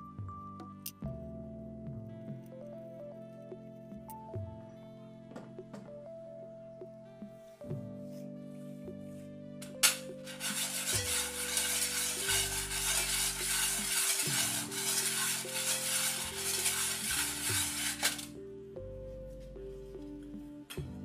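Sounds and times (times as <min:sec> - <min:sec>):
metal pins rattling in steel bowl: 0:09.6 - 0:18.3.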